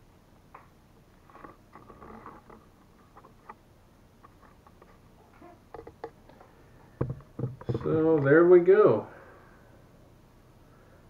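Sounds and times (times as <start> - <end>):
handling clicks and rustles: 4.2 - 8.4.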